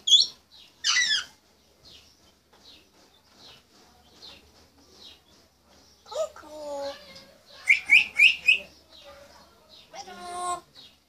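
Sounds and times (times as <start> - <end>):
parrot soft high chirps: 0.0 - 1.4, 7.0 - 8.7.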